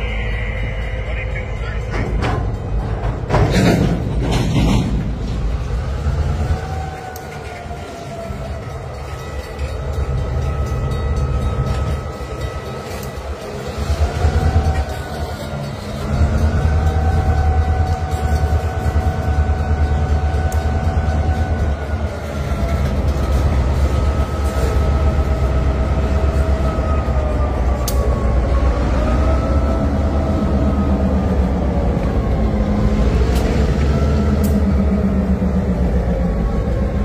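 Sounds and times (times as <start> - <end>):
diesel engines rumbling: 0.0 - 37.0
train wheels on rails: 0.0 - 37.0
high wavering whine: 5.8 - 37.0.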